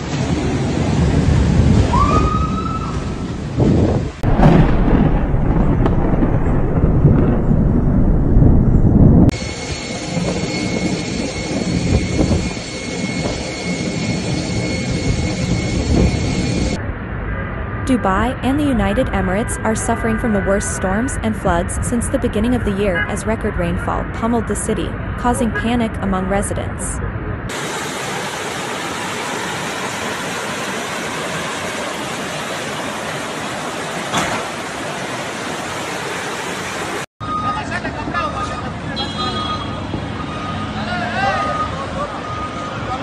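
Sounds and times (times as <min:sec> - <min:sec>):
jet engine whine: 0:07.7 - 0:38.1
rushing water noise: 0:27.5 - 0:37.1.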